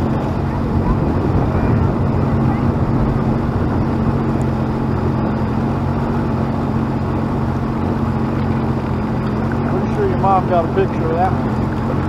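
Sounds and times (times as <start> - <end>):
watercraft engine running: 0.0 - 12.0.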